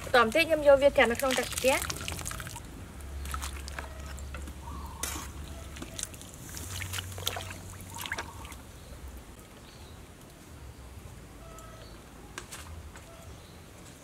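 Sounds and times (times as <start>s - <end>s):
water splashing and dripping: 0.0s - 9.6s.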